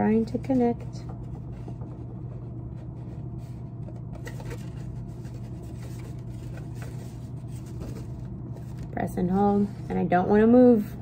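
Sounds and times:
steady low hum: 0.0 - 11.0
paper rustling and scratching: 0.2 - 9.0
soft scrapes: 0.4 - 10.0.

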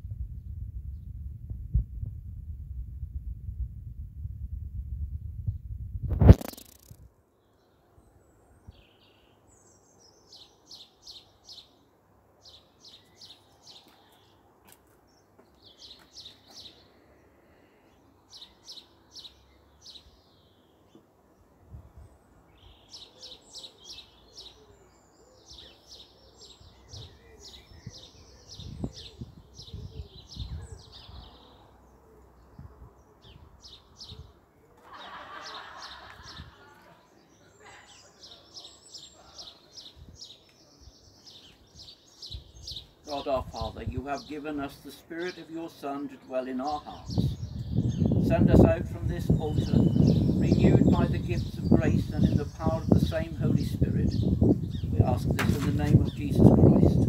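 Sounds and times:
low thumps: 0.0 - 7.0
songbirds singing: 5.4 - 57.0.

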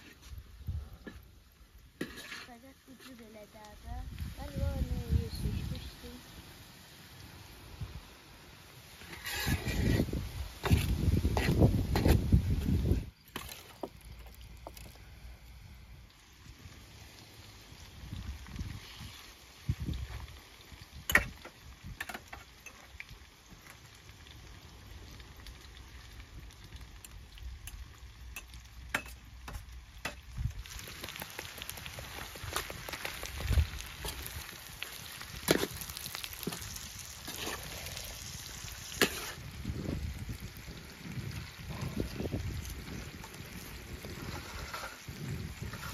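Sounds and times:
chicken sizzling in a pan: 0.0 - 13.2, 15.1 - 45.9
metal spoon scraping a pan: 2.0 - 3.3, 8.9 - 12.2, 28.4 - 30.2, 36.4 - 39.5, 44.2 - 45.9.

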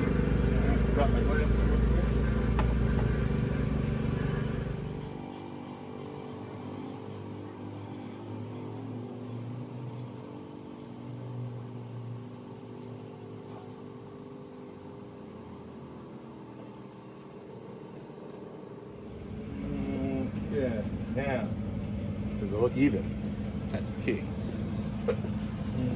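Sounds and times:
power equipment engine running: 0.0 - 25.9.

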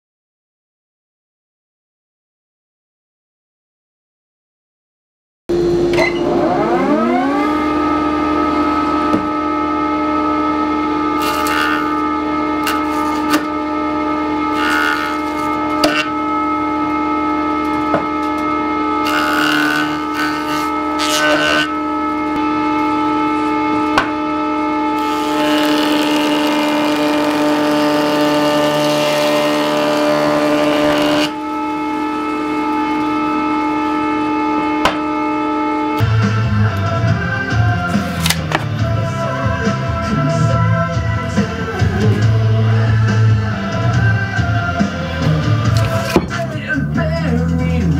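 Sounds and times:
circular saw whine: 5.5 - 46.2
saw blade cutting wood: 10.4 - 35.2, 37.9 - 38.6.

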